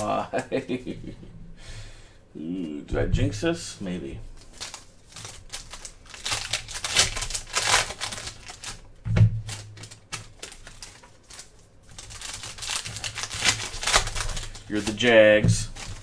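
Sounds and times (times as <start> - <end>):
cards rustling as shuffled: 4.4 - 16.0
foil card pack crinkling: 4.4 - 16.0.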